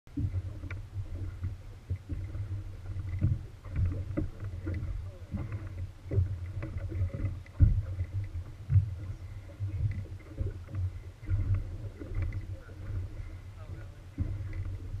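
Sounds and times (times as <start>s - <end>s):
boat motor rumble: 0.1s - 15.0s
waves slapping against hull: 0.1s - 15.0s.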